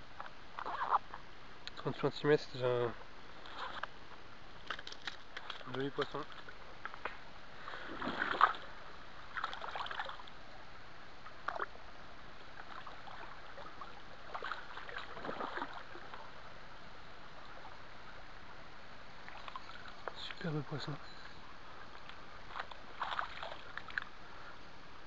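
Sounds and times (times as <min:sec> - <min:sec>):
stream running: 0:00.1 - 0:25.0
water splashing: 0:07.6 - 0:10.4, 0:12.5 - 0:16.5, 0:19.2 - 0:21.0, 0:21.7 - 0:24.2.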